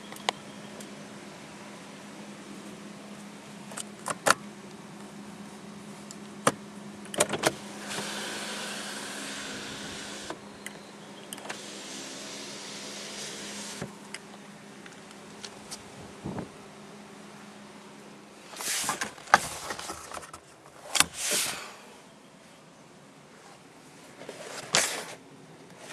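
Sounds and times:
small electric motor running: 7.8s - 10.4s.

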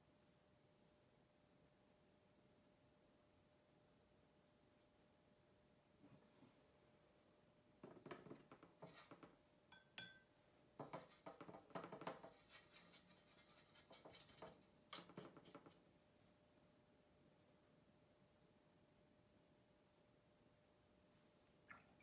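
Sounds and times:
painting tools clicking and scraping: 8.2s - 9.3s, 10.8s - 15.8s
ringing clink: 9.7s - 10.3s.

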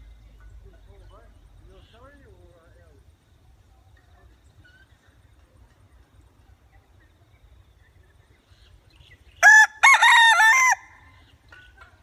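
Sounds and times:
rooster crowing: 9.4s - 11.1s.

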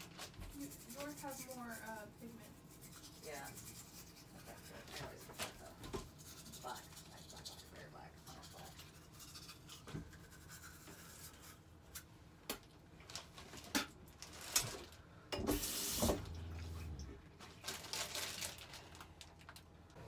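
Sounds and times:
toothbrush scrubbing: 0.4s - 12.1s.

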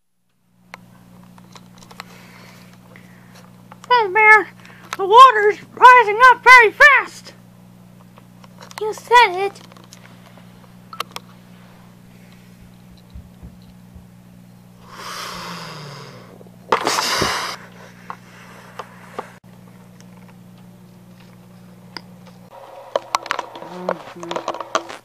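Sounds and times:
low electrical hum: 0.0s - 25.0s
rushing hissing noise bursts: 14.8s - 17.6s.

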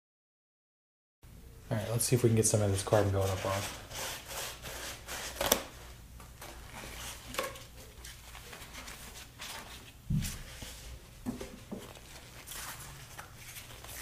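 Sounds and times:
cloth rustling: 6.4s - 14.0s.

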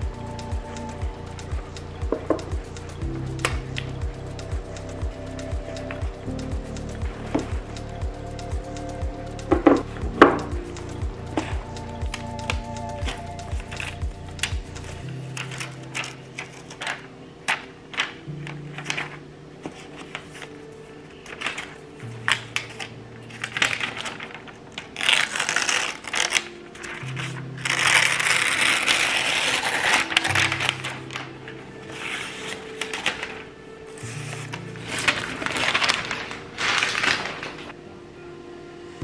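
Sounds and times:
soft background music: 0.0s - 39.0s
plastic wrap crinkling: 9.5s - 37.8s.

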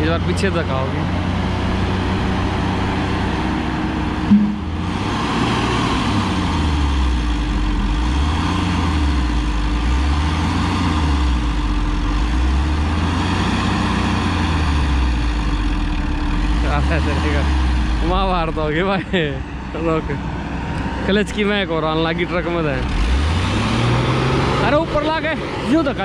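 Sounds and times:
excavator engine running: 0.0s - 26.0s
truck engine straining: 0.0s - 26.0s
short knock: 4.3s - 4.8s.

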